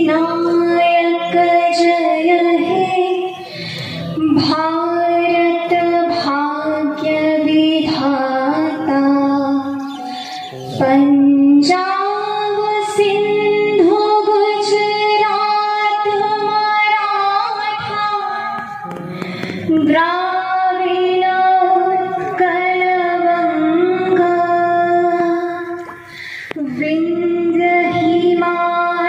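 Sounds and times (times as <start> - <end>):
woman singing into a microphone: 0.0 - 29.0.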